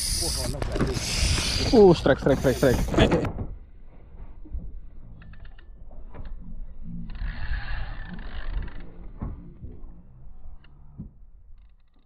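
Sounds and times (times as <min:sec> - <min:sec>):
fishing reel ratchet clicks: 0:00.0 - 0:01.7, 0:05.2 - 0:05.7, 0:07.1 - 0:09.0
fishing reel rasping run: 0:00.0 - 0:03.0, 0:07.0 - 0:09.0.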